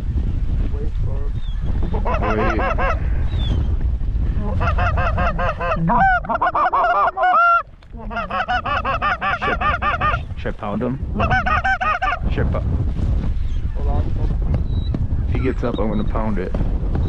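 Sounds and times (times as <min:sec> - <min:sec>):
low wind rumble: 0:00.0 - 0:17.0
goose honking: 0:01.9 - 0:03.0, 0:04.5 - 0:10.3, 0:11.2 - 0:12.2.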